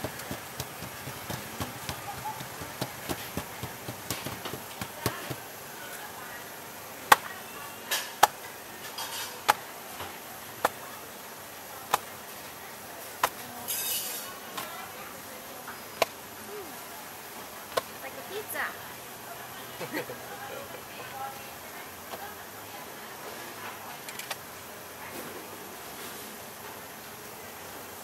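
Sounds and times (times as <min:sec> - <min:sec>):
dough slapped on steel: 0:00.0 - 0:05.4, 0:07.1 - 0:07.3, 0:08.1 - 0:08.4, 0:09.4 - 0:09.6, 0:11.9 - 0:12.1
dough patted on steel counter: 0:00.0 - 0:05.5, 0:07.1 - 0:07.4, 0:09.4 - 0:09.7, 0:10.6 - 0:10.8, 0:11.9 - 0:12.1, 0:13.2 - 0:13.4.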